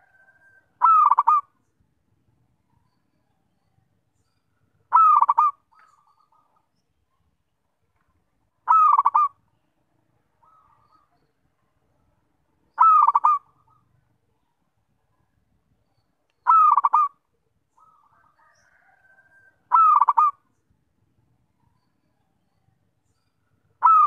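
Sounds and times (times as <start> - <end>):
dove cooing: 0.0 - 1.5, 4.9 - 6.6, 8.7 - 9.4, 12.7 - 13.9, 16.5 - 17.2, 17.8 - 20.4, 23.8 - 24.0.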